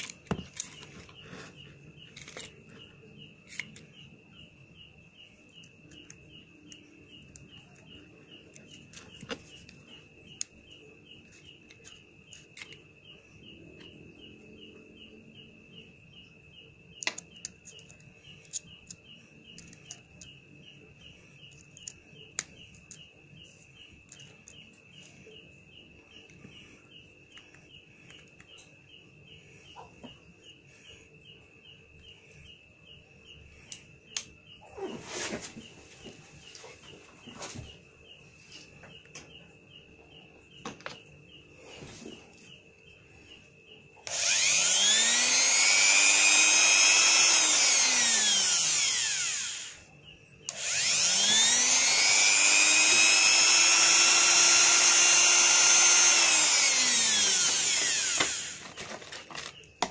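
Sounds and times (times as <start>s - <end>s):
insect chirping: 0.0s - 59.9s
grinder chuck clicking: 44.0s - 49.8s, 50.5s - 59.9s.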